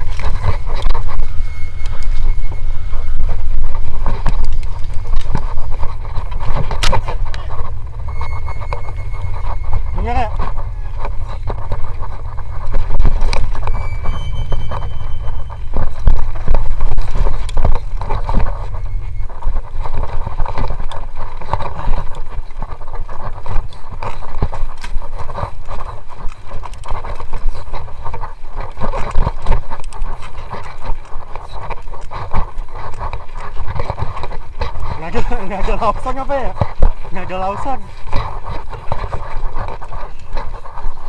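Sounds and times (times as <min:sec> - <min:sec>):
high squeal: 0:00.0 - 0:20.8
bike rattling on a dirt trail: 0:00.0 - 0:41.0
wind rumble on microphone: 0:00.0 - 0:41.0.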